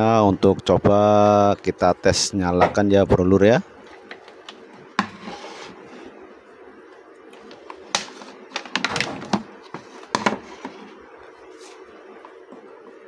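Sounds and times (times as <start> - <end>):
plastic handling noises: 7.3 - 12.7.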